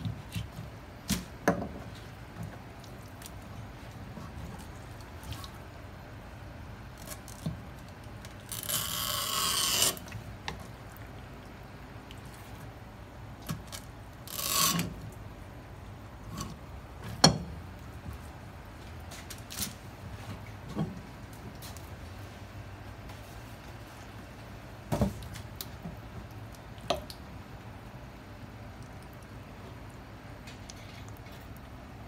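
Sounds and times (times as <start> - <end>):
knife scraping cutting board: 8.6 - 10.2, 14.3 - 15.0.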